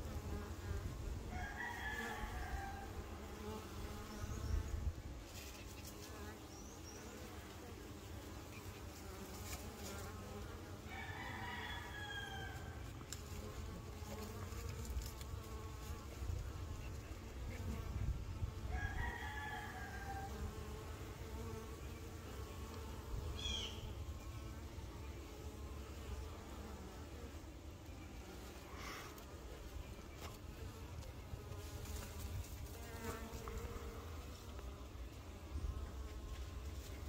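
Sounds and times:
honey bees buzzing: 0.0s - 37.0s
rooster crowing: 1.3s - 2.9s, 10.9s - 12.8s, 18.7s - 20.4s.

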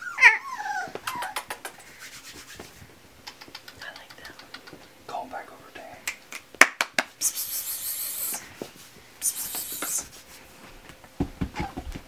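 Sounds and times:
scratchy rubbing swishes: 1.6s - 2.9s
puppies scrabbling on carpet: 8.5s - 12.0s.

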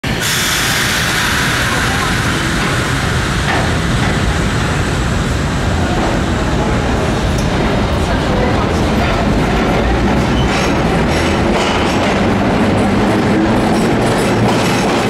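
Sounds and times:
subway train rumbling on rails: 0.0s - 15.0s
high hiss: 0.1s - 5.2s.

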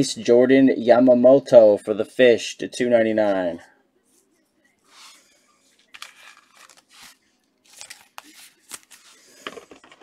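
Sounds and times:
cards and wrappers handled on table: 4.9s - 10.0s.

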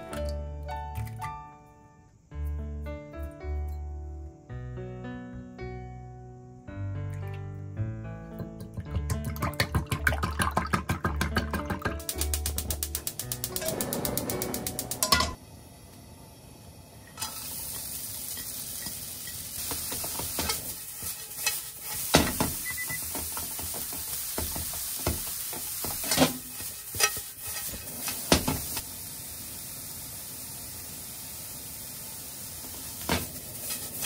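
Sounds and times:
vegetables sizzling in a frying pan: 12.2s - 34.0s
spatula scraping and tapping pan: 18.3s - 28.8s.

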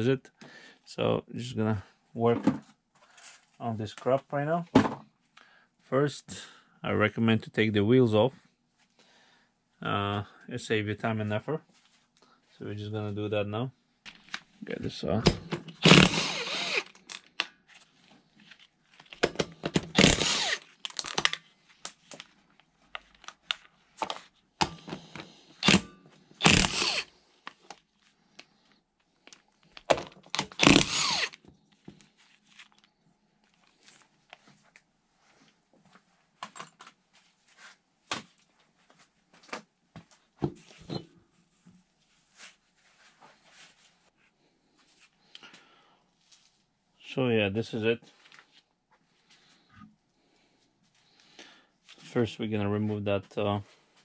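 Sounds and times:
impact wrench bursts: 15.7s - 17.0s, 19.8s - 20.6s, 25.6s - 27.1s, 30.4s - 31.4s.

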